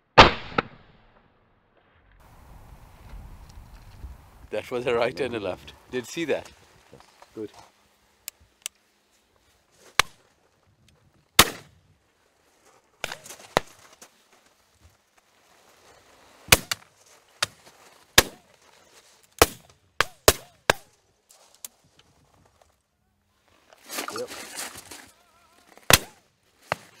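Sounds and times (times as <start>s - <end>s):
shotgun shots: 0.2s - 1.0s, 11.4s - 11.7s, 25.9s - 26.2s.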